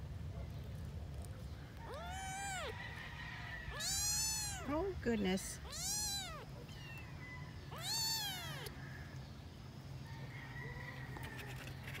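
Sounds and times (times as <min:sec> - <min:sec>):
kitten meowing: 0:01.9 - 0:02.8, 0:03.7 - 0:04.7, 0:05.6 - 0:07.1, 0:07.7 - 0:08.7.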